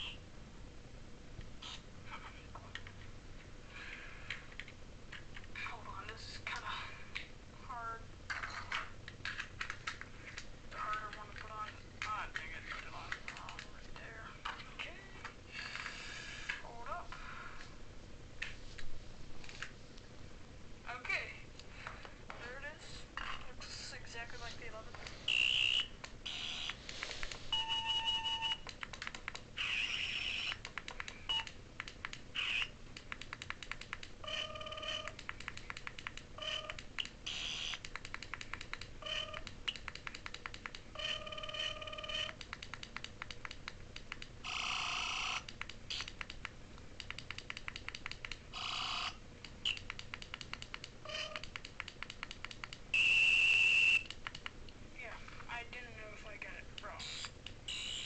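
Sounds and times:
toy electronic buzzing and beeping: 25.3s - 26.8s, 27.5s - 28.7s, 29.6s - 30.7s, 32.3s - 32.8s, 34.2s - 35.2s, 36.4s - 37.9s, 39.0s - 39.9s, 40.9s - 42.4s, 44.4s - 46.2s, 48.5s - 49.9s, 51.0s - 51.6s, 52.9s - 54.2s, 57.0s - 58.0s
long steady electronic tone: 27.5s - 28.6s, 34.2s - 35.2s, 41.0s - 42.4s, 52.9s - 54.1s
fast clicking: 28.6s - 34.2s, 35.0s - 40.9s, 42.3s - 44.4s, 45.4s - 48.4s, 49.4s - 52.8s.

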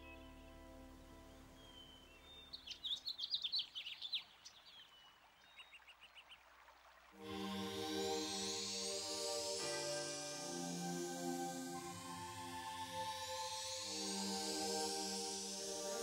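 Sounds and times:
bird chirping: 0.0s - 6.4s
low hiss: 0.0s - 16.0s
synthesizer music: 7.2s - 16.0s.

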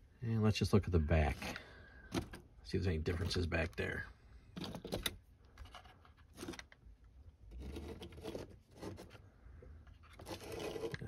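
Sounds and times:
scraping rustle: 7.5s - 11.0s.

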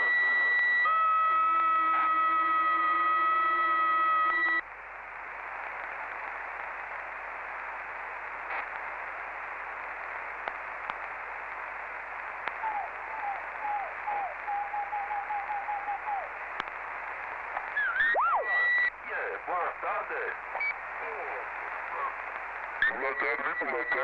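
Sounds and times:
steady electronic radio tones: 0.0s - 4.6s, 12.2s - 24.0s
radio static hiss: 0.0s - 24.0s
faint clicks: 16.5s - 16.8s.

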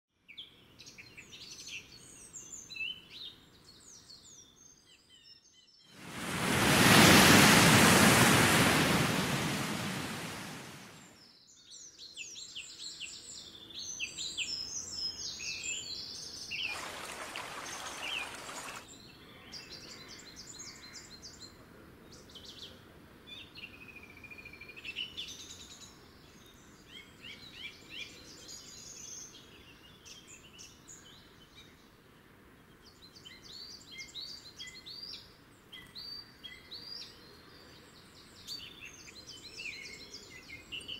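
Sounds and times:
loud rushing noise: 6.0s - 11.0s.

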